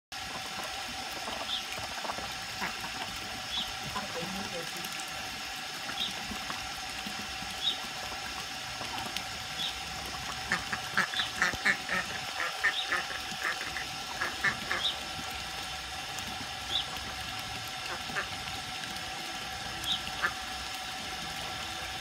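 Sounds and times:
ducklings peeping: 9.5s - 15.0s, 19.7s - 20.4s.

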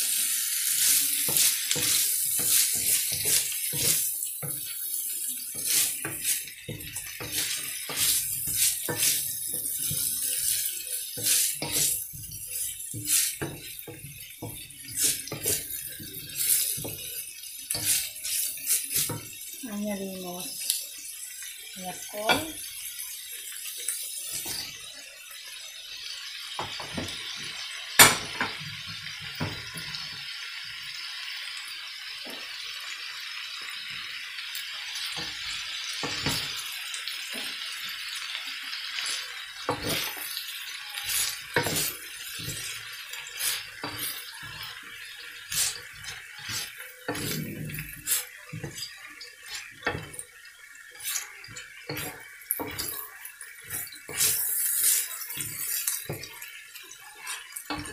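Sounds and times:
vegetables sizzling in a wok: 0.0s - 57.9s
wooden spatula scraping a pan: 0.8s - 4.7s, 5.5s - 19.3s, 41.0s - 50.2s.

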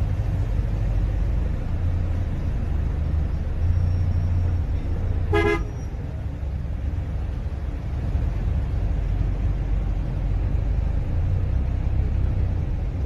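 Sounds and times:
traffic engines rumbling: 0.0s - 13.0s
vehicle horn toot: 5.3s - 5.8s.

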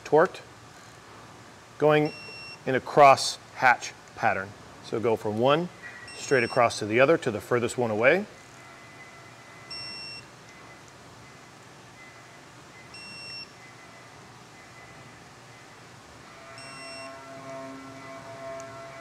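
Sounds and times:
torque wrench short high beeps: 12.9s - 13.6s, 16.6s - 17.2s.

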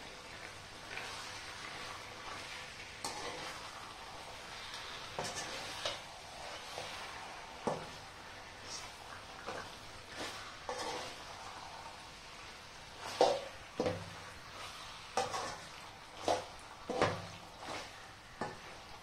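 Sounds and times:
chicken sizzling in a pot: 0.0s - 19.0s
metal spoon scraping a pot: 3.0s - 3.6s, 5.2s - 6.6s, 10.1s - 11.2s, 15.2s - 18.7s.

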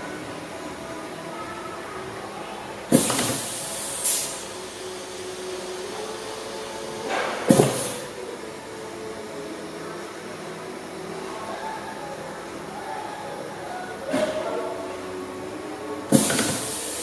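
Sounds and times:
compressed air hiss: 2.9s - 8.2s, 16.1s - 17.0s.

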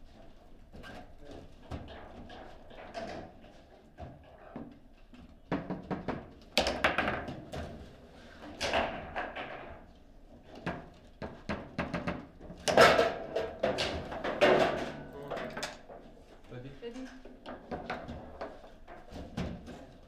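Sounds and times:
foosball ball knocking: 6.6s - 7.5s
foosball rods slamming: 12.6s - 15.9s.

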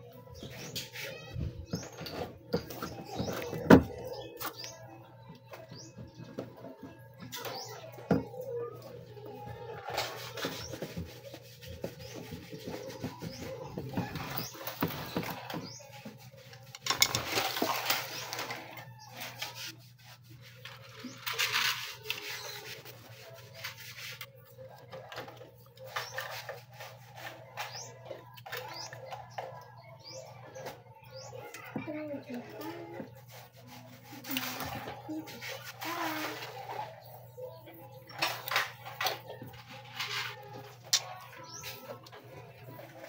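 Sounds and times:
rubbing and scraping: 9.5s - 43.0s.

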